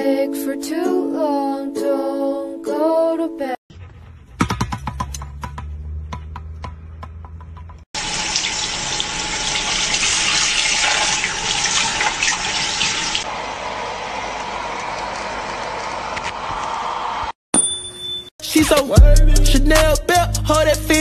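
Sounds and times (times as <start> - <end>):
soft plucked music: 0.0 - 3.5
tap water running into sink: 8.0 - 13.2.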